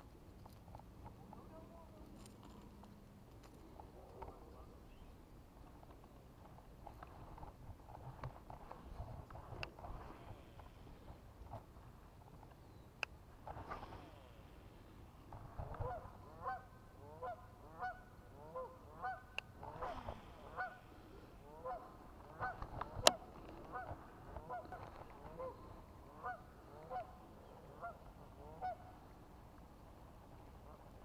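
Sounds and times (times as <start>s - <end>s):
geese honking: 15.8s - 29.0s.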